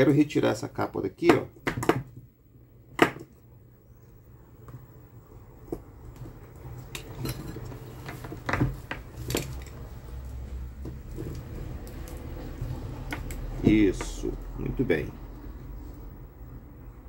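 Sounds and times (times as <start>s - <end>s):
metal tools clinking: 7.0s - 7.8s.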